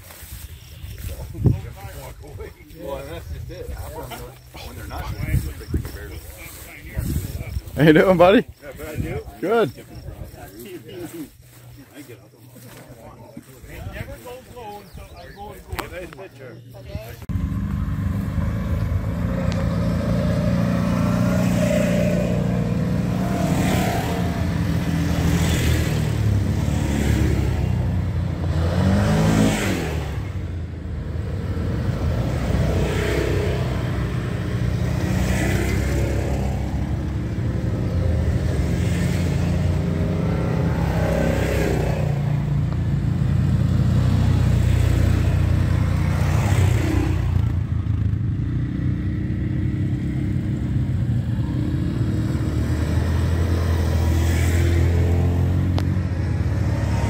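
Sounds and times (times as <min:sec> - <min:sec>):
utility vehicle engine revving: 0:17.2 - 0:57.0.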